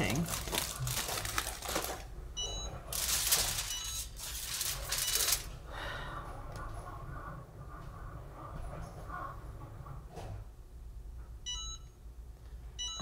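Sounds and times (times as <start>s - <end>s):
aluminium foil crinkling: 0.0s - 2.1s, 2.9s - 5.5s.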